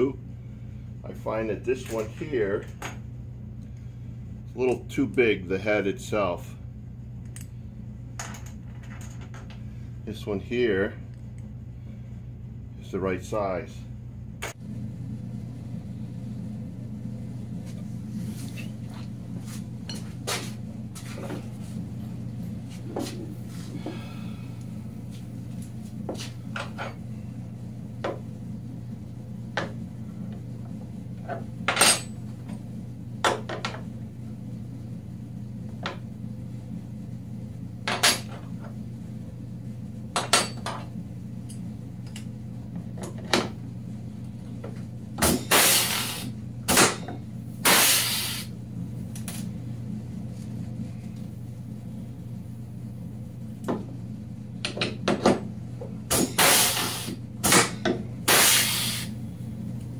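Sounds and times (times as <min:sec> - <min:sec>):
air hissing: 0:45.5 - 0:46.4, 0:47.6 - 0:48.6, 0:56.1 - 0:57.2, 0:58.3 - 0:59.2.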